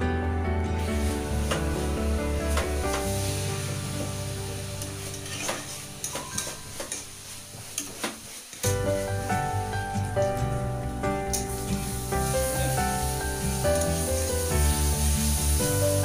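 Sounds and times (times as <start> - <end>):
cabbage sizzling in a pan: 0.8 - 16.0
spatula scraping and knocking pan: 5.0 - 8.8.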